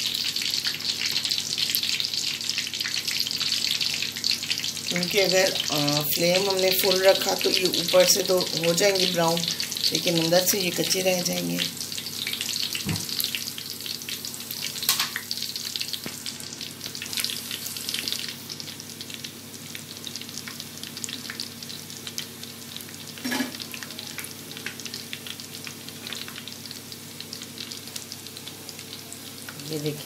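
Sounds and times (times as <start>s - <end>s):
food deep-frying in oil: 0.0s - 30.0s
short knock: 12.8s - 13.1s.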